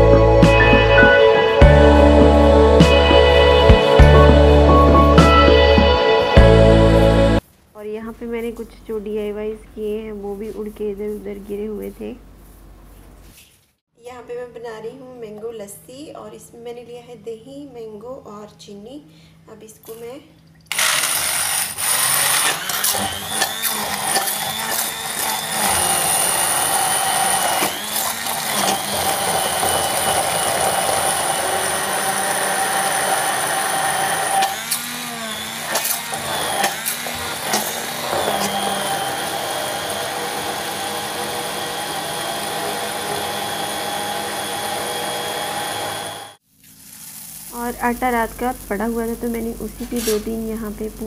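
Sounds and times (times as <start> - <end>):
hand blender whining: 0.0 - 7.4, 20.7 - 46.4.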